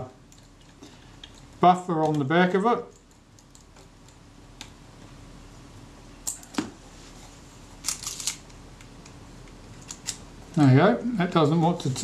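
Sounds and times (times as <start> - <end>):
camera mechanism clicks: 7.8 - 8.5
camera mechanism rattle: 7.8 - 8.5, 9.7 - 10.2.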